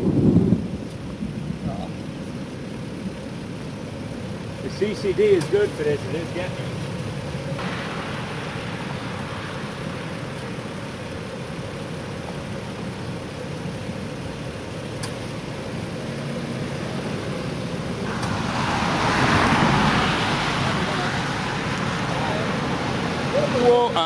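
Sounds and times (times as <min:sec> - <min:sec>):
broad hiss: 0:04.6 - 0:24.0.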